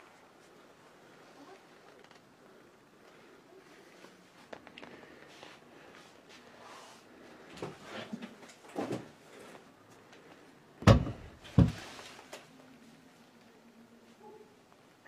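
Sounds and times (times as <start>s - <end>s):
knocks and thumps: 10.8s - 11.8s.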